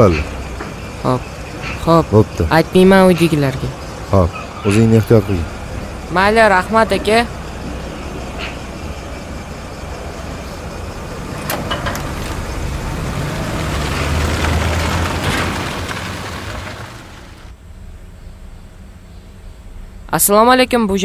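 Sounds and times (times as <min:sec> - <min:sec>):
car engine pulling away: 0:03.7 - 0:20.1.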